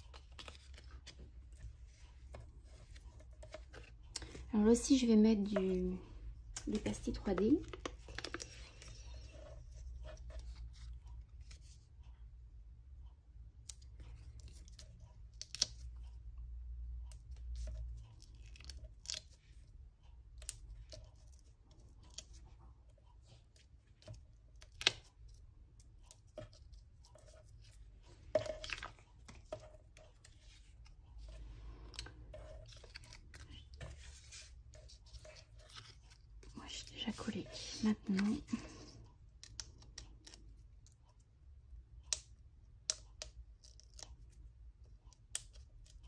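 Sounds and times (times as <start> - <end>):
paper and backing crackling: 0.0 - 12.1, 20.4 - 40.6.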